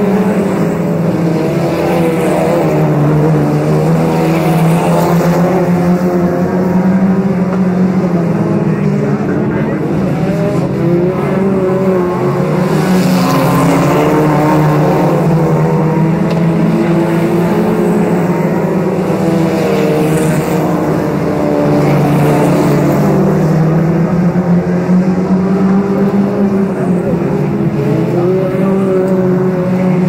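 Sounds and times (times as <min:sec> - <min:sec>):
race car engines droning: 0:00.0 - 0:30.0.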